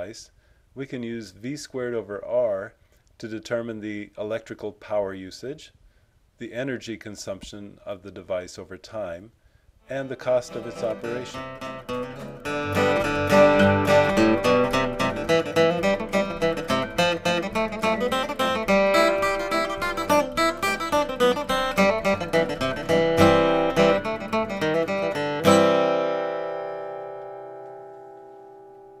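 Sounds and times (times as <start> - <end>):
acoustic guitar plucking: 10.0 - 29.0.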